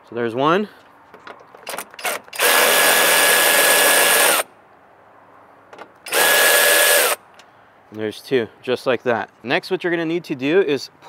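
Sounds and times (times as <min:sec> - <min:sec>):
cordless ratchet whining: 0:01.7 - 0:04.4, 0:06.1 - 0:07.2.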